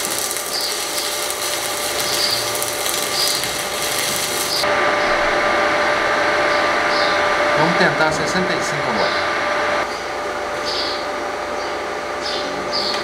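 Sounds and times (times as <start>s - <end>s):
welding arc crackling and hissing: 0.0s - 4.7s
steady electrical hum: 0.0s - 13.0s.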